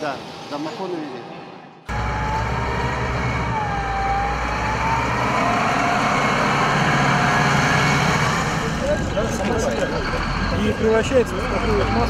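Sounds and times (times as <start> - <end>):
diesel engine running: 1.9 - 12.0.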